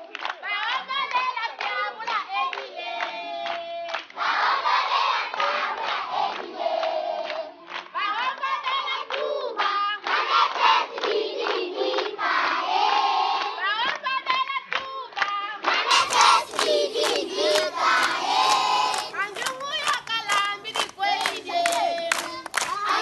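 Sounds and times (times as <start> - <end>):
hands clapping: 0.0 - 4.2, 5.3 - 12.2, 13.4 - 23.0
children singing together: 4.3 - 7.6, 8.6 - 13.6, 15.6 - 23.0.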